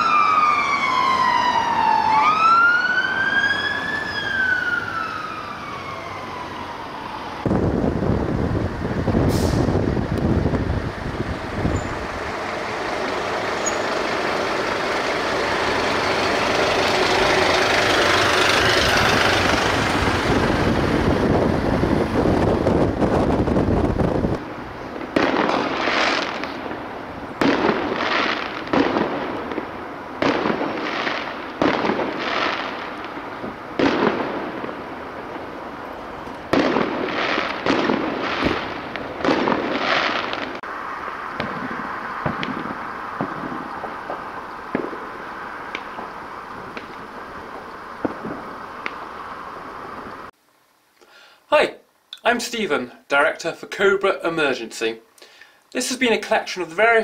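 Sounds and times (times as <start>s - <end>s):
fire engine passing: 0.0s - 50.4s
fireworks bangs: 7.4s - 50.3s.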